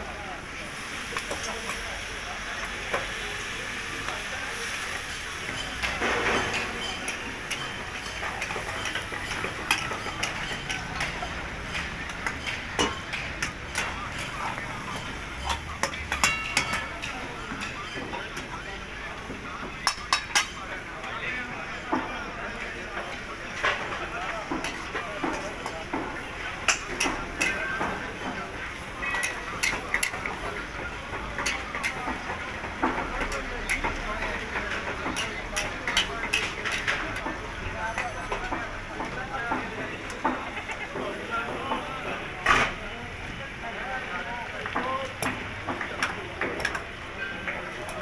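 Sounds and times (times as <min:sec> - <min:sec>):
metal spatulas clinking in woks: 0:05.1 - 0:18.5, 0:19.8 - 0:20.6, 0:23.0 - 0:26.0, 0:26.6 - 0:38.6
ladle clinking against wok: 0:05.4 - 0:18.4, 0:29.0 - 0:30.3.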